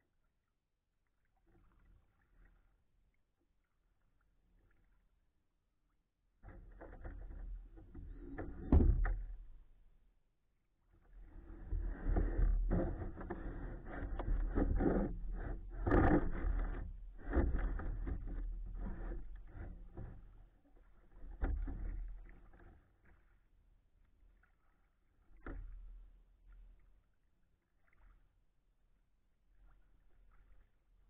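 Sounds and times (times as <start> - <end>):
paddle strokes splashing: 11.1 - 27.0, 27.7 - 28.5.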